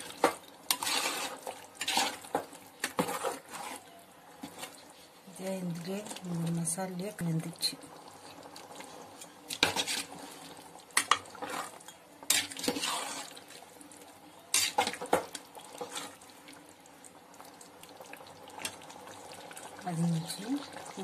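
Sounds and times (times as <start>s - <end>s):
ladle scraping metal pot: 0.1s - 4.7s, 9.2s - 10.4s, 11.0s - 13.4s, 14.5s - 15.1s.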